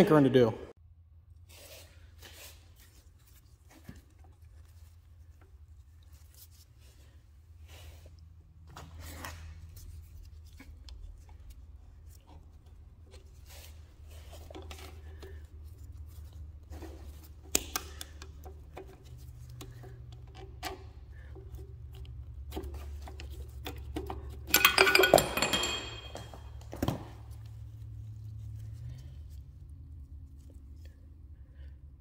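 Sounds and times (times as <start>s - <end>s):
small metal parts clinking: 24.2s - 26.6s.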